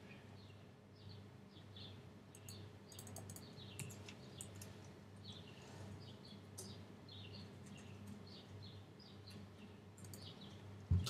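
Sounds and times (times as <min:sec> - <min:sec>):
computer keyboard typing: 0:02.3 - 0:04.7, 0:10.0 - 0:10.3.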